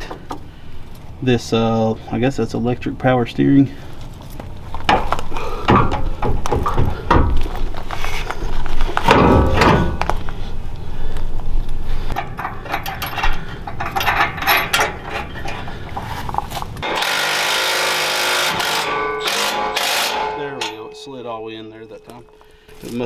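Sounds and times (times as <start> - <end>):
metal clatter: 9.0 - 10.4, 12.0 - 17.1
metal hardware clinking: 12.1 - 17.1, 18.6 - 23.0
cordless power tool running: 16.8 - 20.1.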